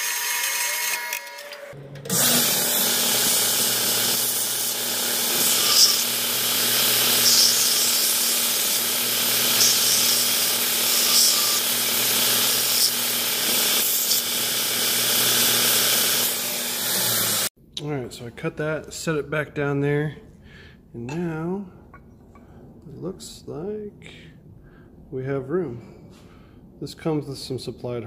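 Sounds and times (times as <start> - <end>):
high-pitched grinding scrapes: 0.0 - 17.5
belt sander running: 2.1 - 17.5.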